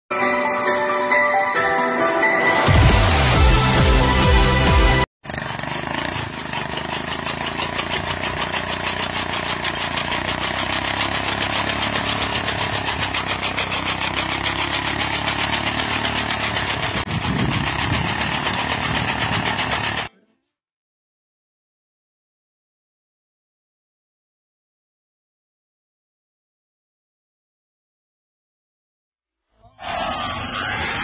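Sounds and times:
motorcycle engine running: 2.8 - 20.1.

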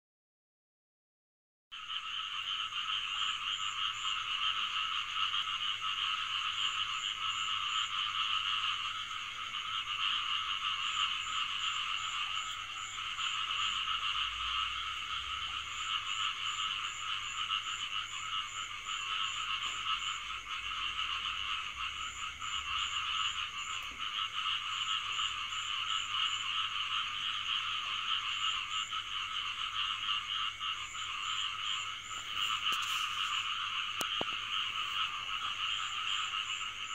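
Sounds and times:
frogs chorus calling: 1.8 - 36.9
quick high pulsed frog calls: 1.8 - 36.9.

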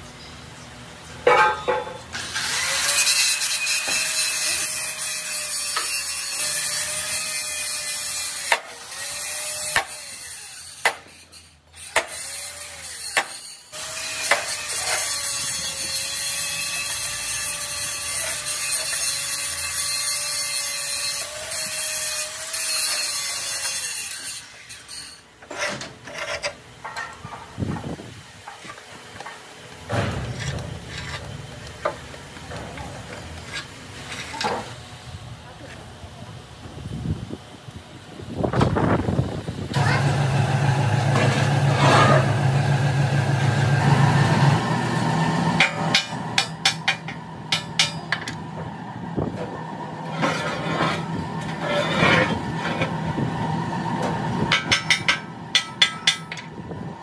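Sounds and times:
metal knocks: 1.3 - 2.0
angle grinder cutting steel: 2.1 - 27.0, 50.0 - 53.1.

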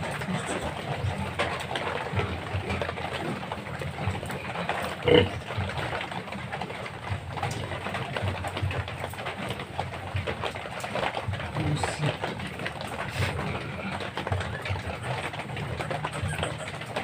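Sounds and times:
pigs grunting: 0.0 - 6.2, 11.5 - 17.0
piglet squeal: 15.8 - 17.0.

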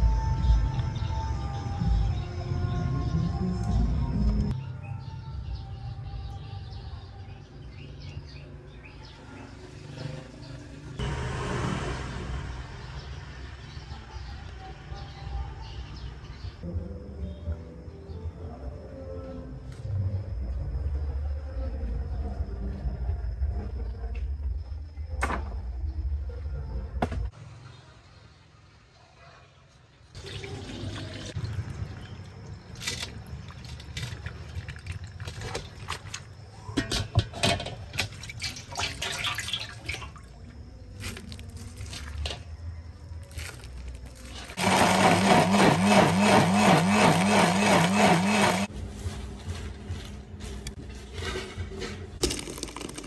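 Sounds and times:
electric blender running: 44.6 - 48.7.

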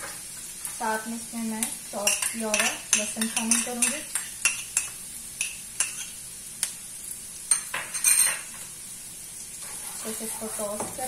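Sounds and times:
onions sizzling in oil: 0.0 - 11.0
metal spoon tapping bowl: 2.1 - 6.0.

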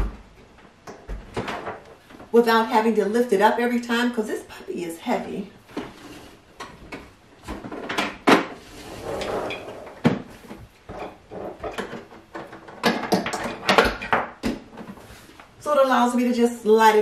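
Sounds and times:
appliance scraping across countertop: 8.6 - 10.0.

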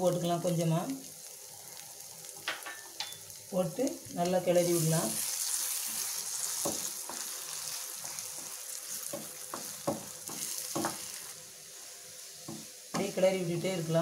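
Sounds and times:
eggs sizzling in oil: 0.0 - 14.0
spatula scraping and tapping pan: 6.0 - 11.2.

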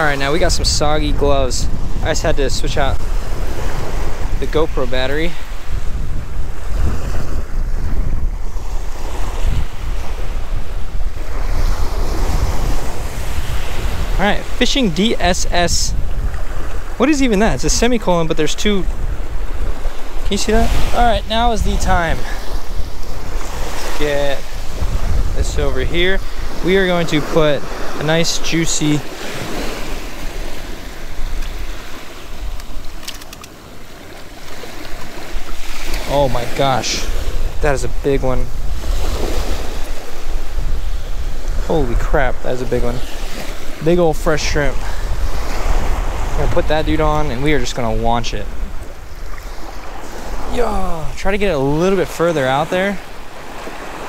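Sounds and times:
surf washing on beach: 0.0 - 54.0
wind buffeting microphone: 0.0 - 54.0
waves washing onto pebbles: 19.2 - 37.6
light clicks: 32.5 - 33.6.

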